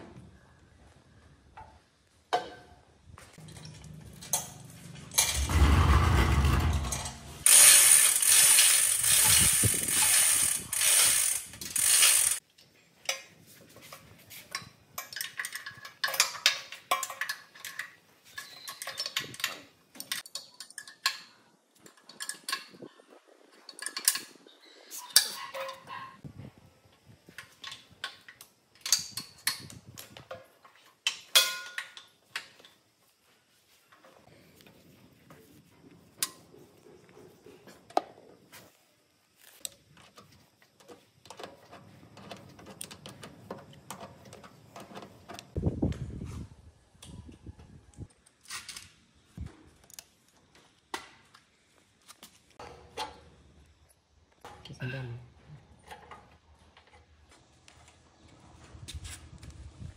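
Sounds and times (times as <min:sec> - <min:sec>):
small mechanical parts clicking: 0:06.8 - 0:12.4.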